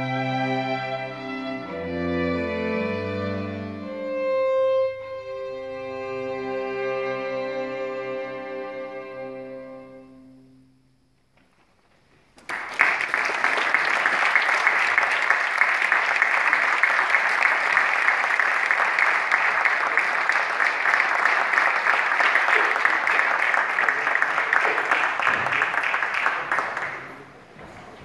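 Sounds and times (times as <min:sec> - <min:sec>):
string quartet chord: 0:00.0 - 0:10.9
audience applause: 0:12.4 - 0:27.5.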